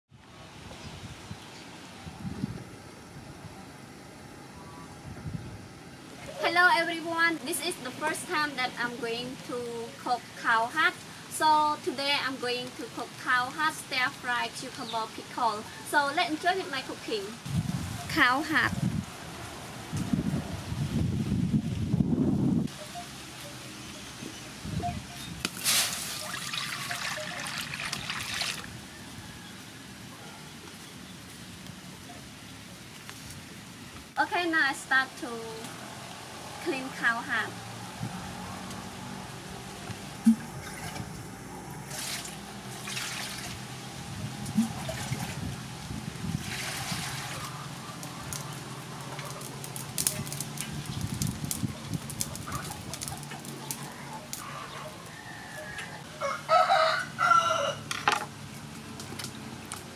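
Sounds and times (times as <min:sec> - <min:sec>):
water poured into metal wok: 0:25.6 - 0:28.7, 0:41.9 - 0:43.6, 0:46.4 - 0:47.4.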